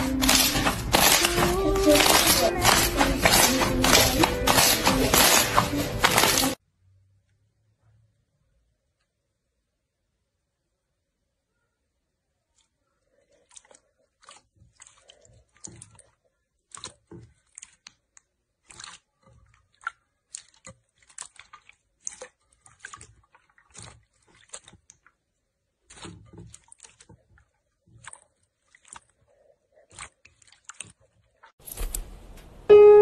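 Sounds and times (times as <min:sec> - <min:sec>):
hands squishing slime: 0:00.0 - 0:06.6, 0:12.4 - 0:31.5.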